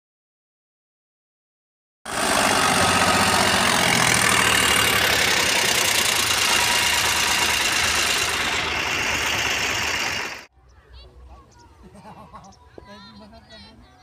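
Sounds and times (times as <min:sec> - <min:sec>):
tractor diesel engine under load: 0:02.1 - 0:10.5.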